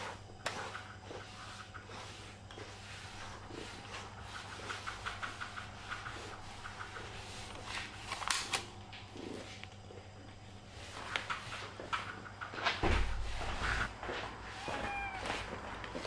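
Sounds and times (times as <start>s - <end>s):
brush stroking through fur: 0.0s - 8.0s, 13.3s - 16.0s
steady low hum: 0.0s - 16.0s.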